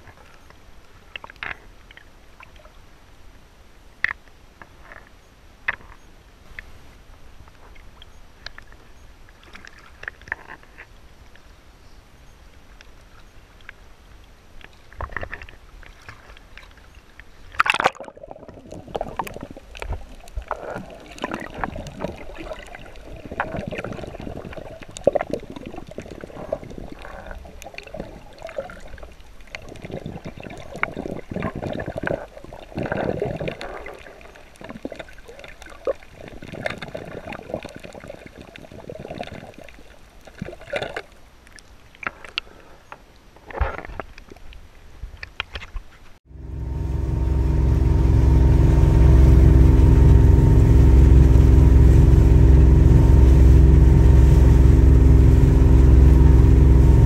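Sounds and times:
water sloshing and gurgling: 7.6s - 11.0s, 14.6s - 42.6s, 45.2s - 57.0s.

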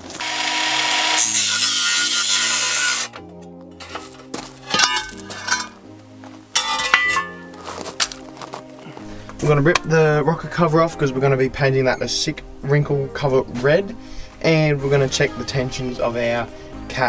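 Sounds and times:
angle grinder cutting metal: 0.0s - 5.8s
metal clinks: 3.2s - 5.8s, 6.6s - 8.2s.

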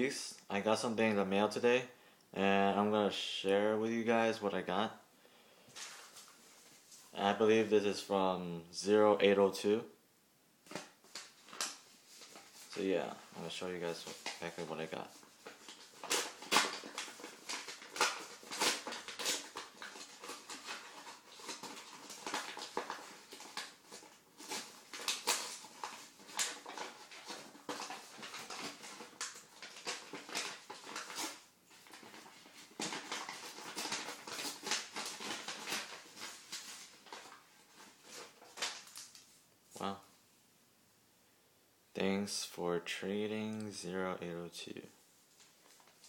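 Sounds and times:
paper envelope tearing and rustling: 10.7s - 39.9s.

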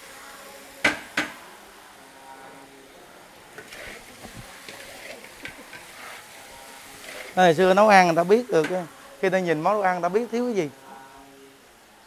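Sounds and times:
faint sizzle: 0.0s - 12.0s
stirring and scraping in pan: 3.3s - 9.2s.

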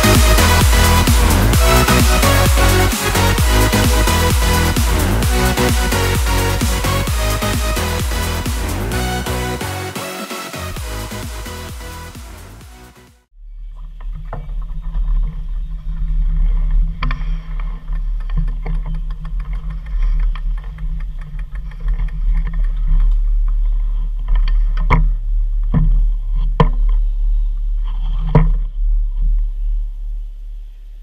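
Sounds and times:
low rumble and hum: 0.0s - 9.9s.

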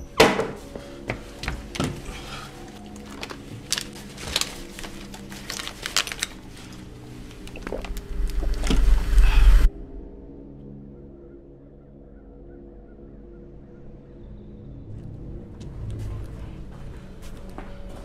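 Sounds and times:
low music drone: 0.0s - 18.0s
plastic bottles clicking and knocking: 2.9s - 8.9s.

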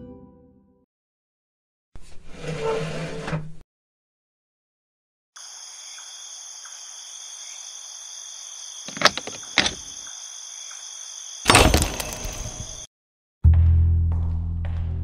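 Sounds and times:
case latches clicking open: 8.9s - 9.8s
metal tool clanking on door handles: 8.9s - 9.9s.

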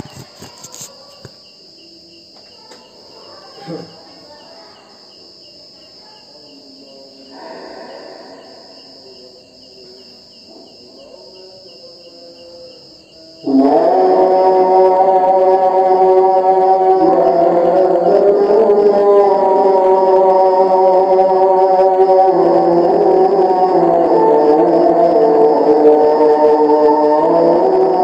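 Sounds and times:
faint background murmur: 0.0s - 13.5s
night insects chirping: 0.0s - 28.0s.

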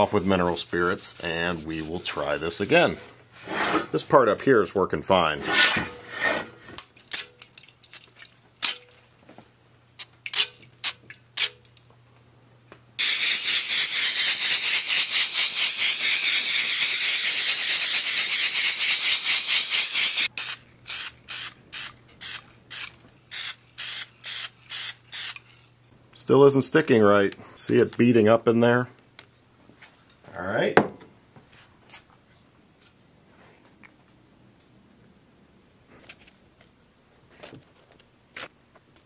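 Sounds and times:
spray paint can spraying: 13.0s - 25.6s.

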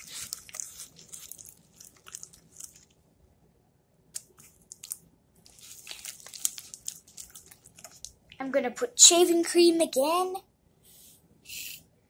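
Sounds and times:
slime squelching and crackling: 0.0s - 3.0s, 4.2s - 8.4s.

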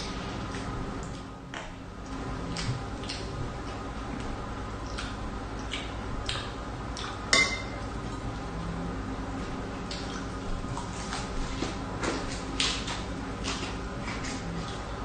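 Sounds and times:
cutlery clinking on steel pot: 7.3s - 7.8s.

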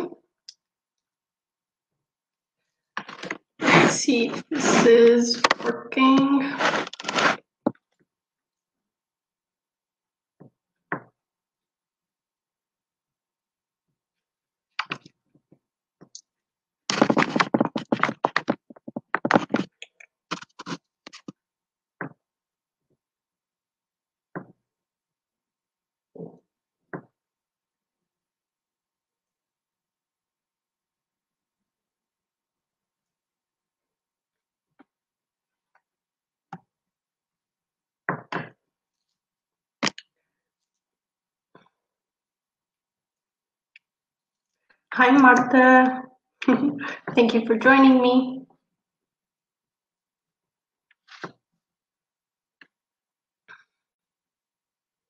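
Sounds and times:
irregular clicks and knocks: 16.9s - 21.4s.

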